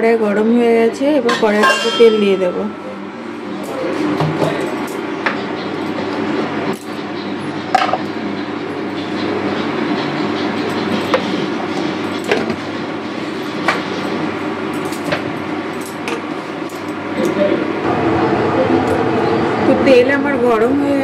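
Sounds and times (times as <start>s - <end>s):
low rumbling hum: 17.8s - 21.0s.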